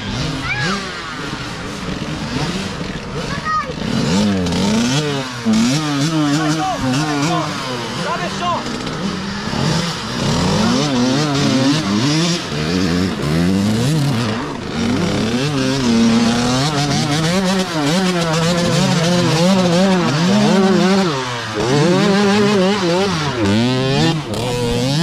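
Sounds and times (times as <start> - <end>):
dirt bike engines revving: 0.0 - 25.0.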